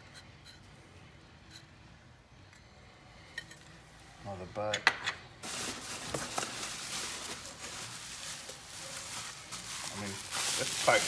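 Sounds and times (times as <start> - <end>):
bubble wrap crinkling: 5.4 - 11.0.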